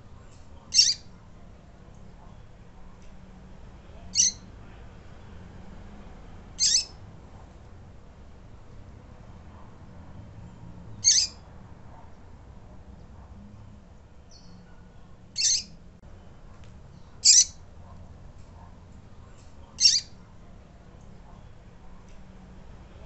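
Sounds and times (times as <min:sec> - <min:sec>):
bird high sharp calls: 0:00.7 - 0:01.1, 0:04.2 - 0:04.4, 0:06.6 - 0:07.0, 0:11.0 - 0:11.4, 0:15.4 - 0:15.7, 0:17.2 - 0:17.6, 0:19.8 - 0:20.2.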